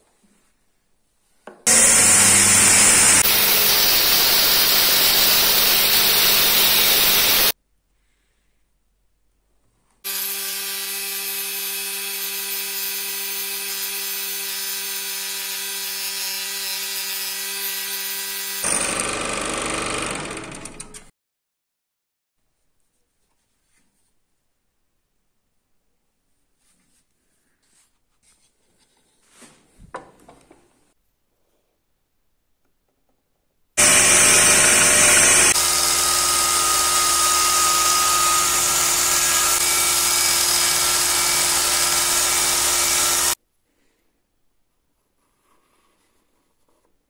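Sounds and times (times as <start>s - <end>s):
electric scroll saw humming: 1.7s - 7.6s, 10.1s - 21.1s, 33.8s - 43.4s
power tool cutting wood: 1.7s - 7.6s, 10.0s - 21.1s, 33.8s - 43.4s.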